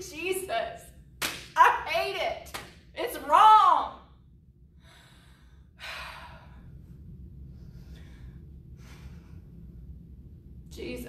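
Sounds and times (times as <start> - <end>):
faint low hum: 0.0 - 11.0
woman breathing heavily: 4.7 - 10.2.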